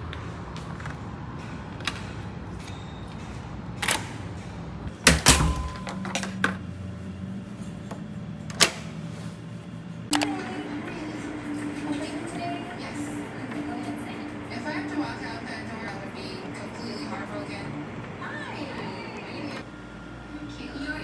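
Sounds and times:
steady low hum: 4.3s - 21.0s.

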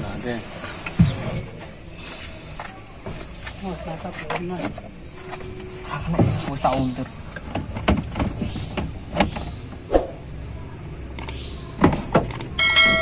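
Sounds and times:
bell-like ding: 12.6s - 13.0s.

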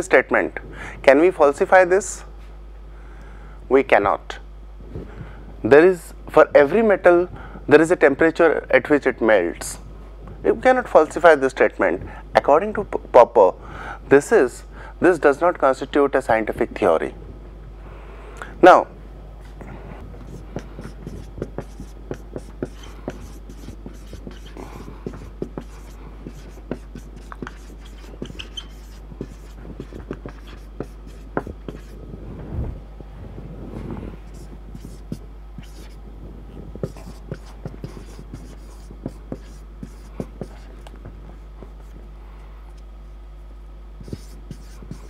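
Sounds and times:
steady low hum: 0.0s - 45.0s
marker pen writing on a whiteboard: 20.2s - 32.0s, 34.2s - 36.0s, 36.8s - 40.9s, 44.0s - 45.0s.

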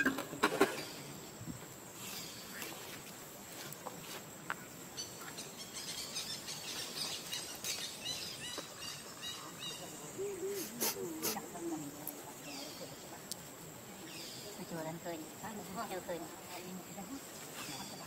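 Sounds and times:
bird-like chirps: 4.6s - 11.8s.

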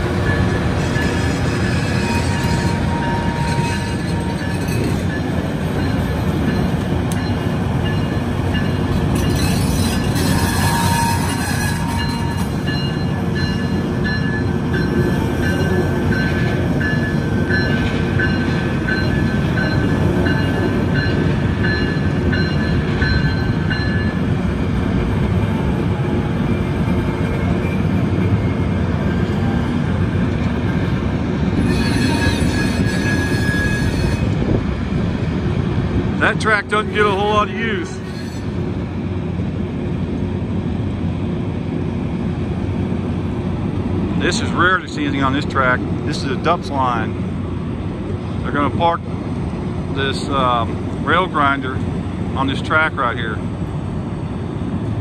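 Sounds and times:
train engines and wheels rumbling: 0.0s - 55.0s
high squealing tones: 31.6s - 34.4s.

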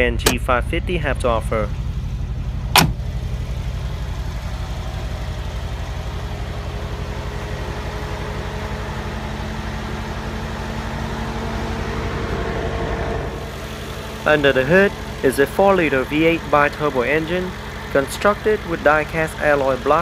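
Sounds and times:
car engine idling: 0.0s - 20.0s
car door shutting: 0.2s - 0.4s, 2.7s - 3.1s.

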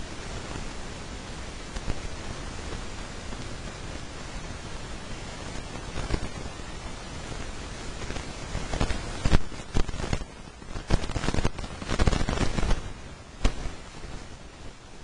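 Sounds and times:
thin sheet crackling: 4.7s - 14.7s.

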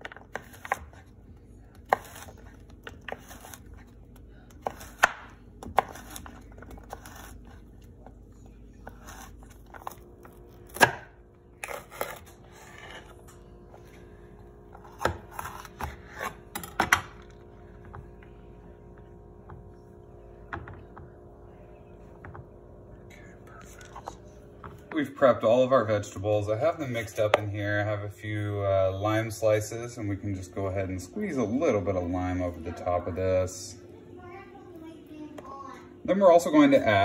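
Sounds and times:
knife chopping on cutting board: 4.6s - 7.3s.

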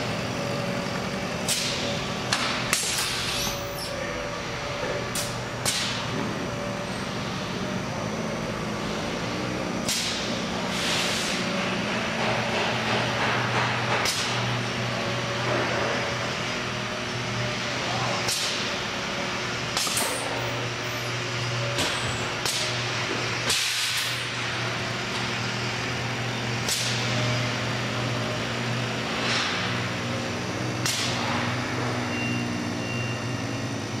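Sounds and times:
crane drive low hum: 0.0s - 34.0s
compressed air hisses: 10.7s - 11.5s.

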